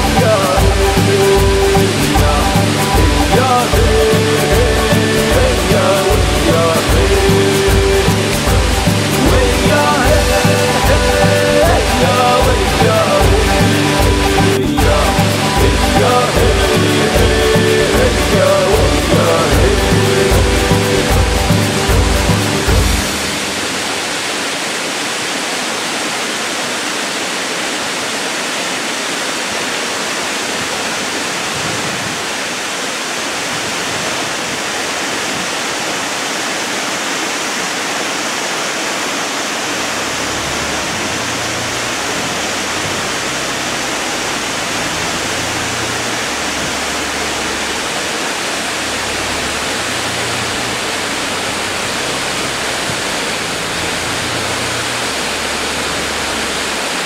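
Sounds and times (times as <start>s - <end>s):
waterfall splashing over rock: 0.0s - 57.0s.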